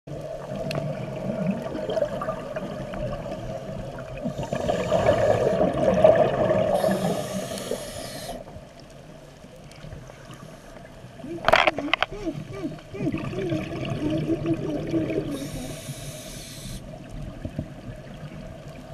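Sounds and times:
water gurgling: 0:00.1 - 0:08.6, 0:11.1 - 0:18.9
regulator breathing underwater: 0:04.2 - 0:05.8, 0:06.5 - 0:08.5, 0:10.4 - 0:13.7, 0:15.2 - 0:16.9.

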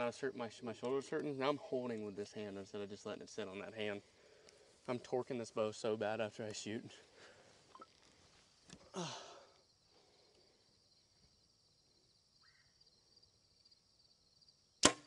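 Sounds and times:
insect chirring: 0:07.7 - 0:14.8
bow string snap: 0:14.8 - 0:15.0.

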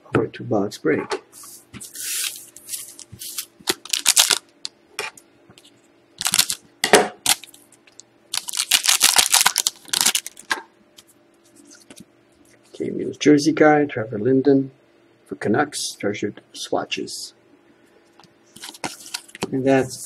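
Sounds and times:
cards sliding out of foil: 0:01.4 - 0:04.4
foil pack crinkling: 0:02.0 - 0:04.5, 0:06.2 - 0:06.6, 0:07.2 - 0:10.6, 0:18.6 - 0:19.5.

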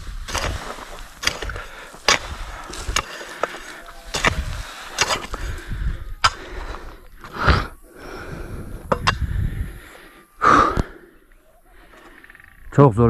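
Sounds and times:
digging tool scraping soil: 0:00.0 - 0:07.8
man breathing out hard: 0:05.3 - 0:11.9.

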